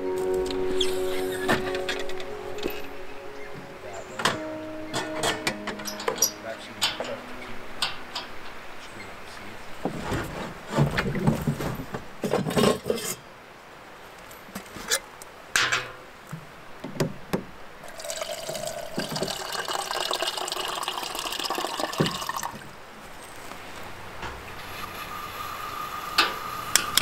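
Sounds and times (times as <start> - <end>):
water running into container: 17.8 - 22.7.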